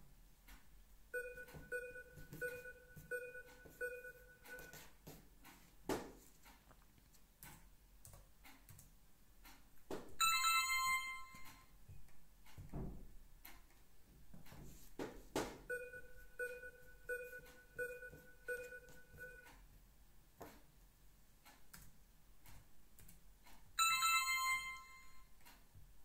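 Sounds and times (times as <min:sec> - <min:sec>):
short two-tone beeps: 0:01.2 - 0:04.7, 0:15.7 - 0:19.5
laptop keys clicking and tapping: 0:01.2 - 0:12.8, 0:21.5 - 0:25.6.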